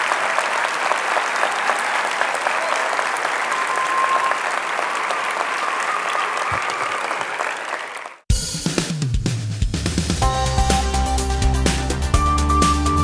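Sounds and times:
audience applauding: 0.0 - 8.3
music: 8.3 - 13.0.

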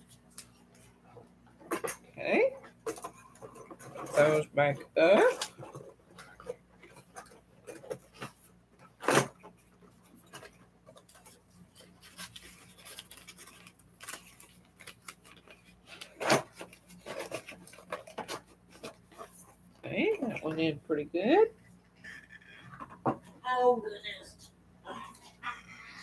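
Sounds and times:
packaging rustling: 9.0 - 19.7.

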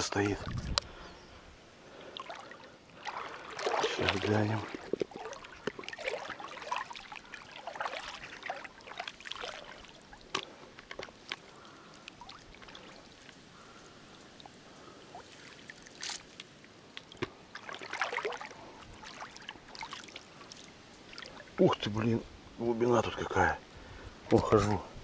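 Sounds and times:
water sloshing around wading legs: 1.9 - 21.9.

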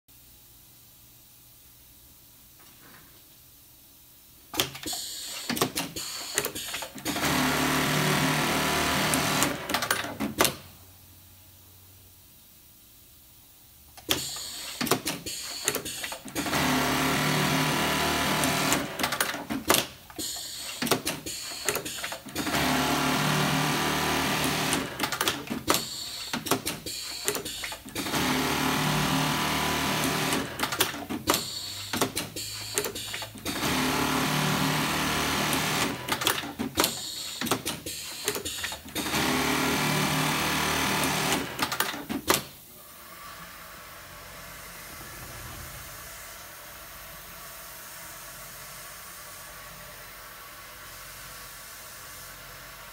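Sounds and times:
sewing machine stitching: 5.4 - 10.5, 14.2 - 42.0.

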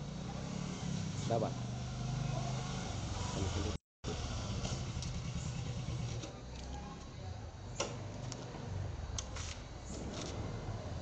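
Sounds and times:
motorcycle engine running: 0.0 - 6.2.

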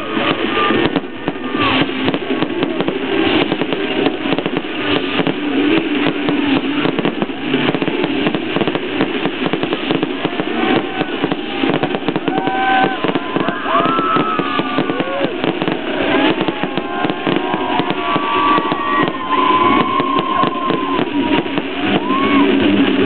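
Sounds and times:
fireworks crackling: 0.0 - 23.0
voices calling out: 10.3 - 22.6.

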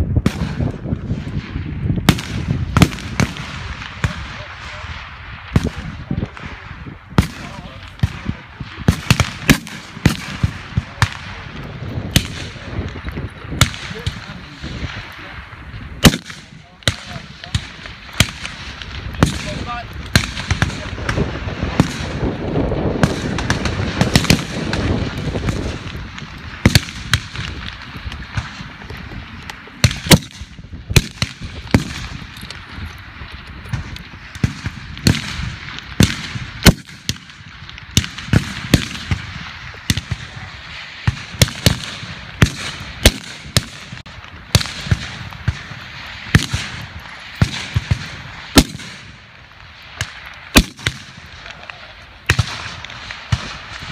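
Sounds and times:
rifle shots: 0.2 - 15.3, 16.0 - 28.9, 29.7 - 33.0, 33.6 - 49.3, 50.0 - 51.5, 52.2 - 53.9.

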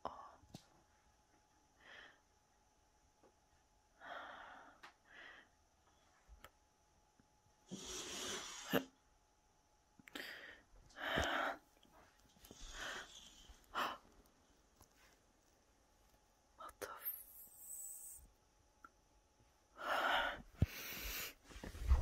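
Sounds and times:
person breathing: 4.0 - 5.6, 7.7 - 8.8, 10.1 - 11.6, 12.4 - 14.1, 19.8 - 22.0.

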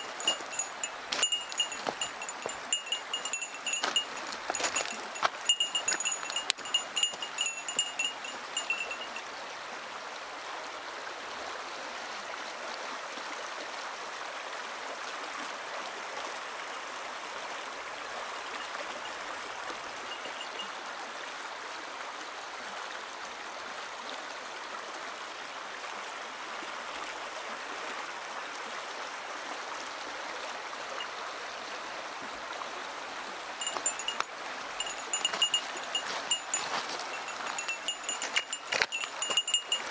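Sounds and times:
small bell jingling: 0.0 - 9.2, 20.1 - 20.7, 33.6 - 39.9
stream babbling over gravel: 0.0 - 9.5, 31.9 - 39.9.

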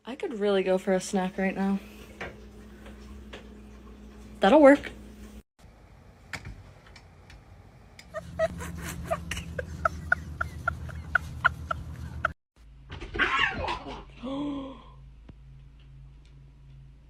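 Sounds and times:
low hum: 1.2 - 12.8.

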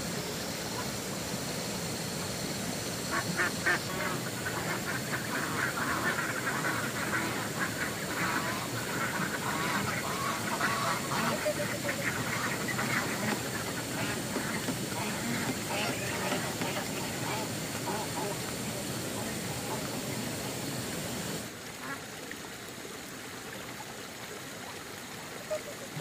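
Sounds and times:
steady background hiss: 0.0 - 26.0
ducks quacking: 3.0 - 20.6.

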